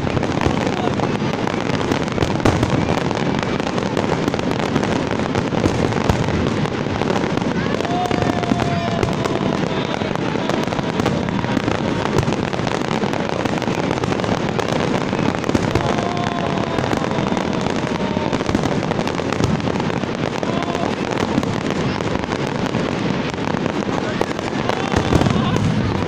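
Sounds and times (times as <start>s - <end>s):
fireworks crackling and banging: 0.0s - 26.0s.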